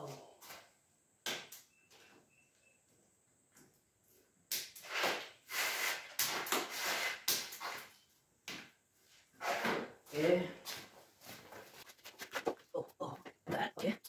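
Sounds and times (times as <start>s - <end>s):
scraping and rustling: 11.0s - 13.4s.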